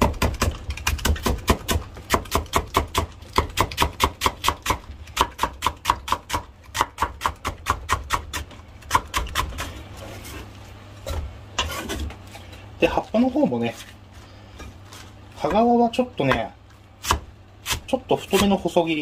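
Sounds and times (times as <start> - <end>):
knife chopping on cutting board: 0.0 - 9.7, 15.4 - 18.6.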